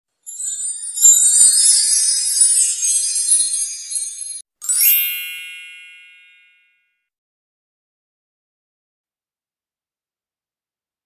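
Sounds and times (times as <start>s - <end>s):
bright chime ringing: 0.2s - 6.9s
high-pitched sparkly twinkling: 0.2s - 6.9s.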